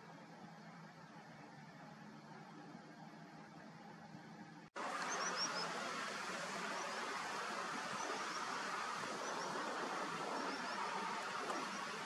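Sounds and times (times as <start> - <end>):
distant surf: 4.8 - 12.0
small birds calling: 4.9 - 6.0, 6.6 - 12.0.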